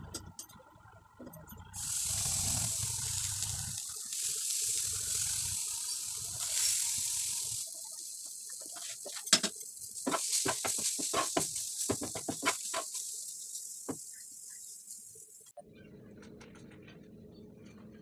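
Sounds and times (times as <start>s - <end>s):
chillies sizzling in a pan: 1.8s - 15.5s
spatula scraping a pan: 8.5s - 13.5s
spatula knocking on pan: 10.1s - 12.9s.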